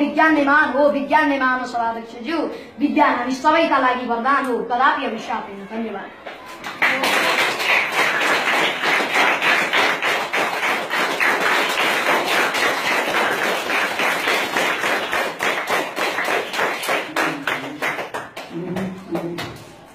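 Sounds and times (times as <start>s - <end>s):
children applauding: 6.5s - 19.6s.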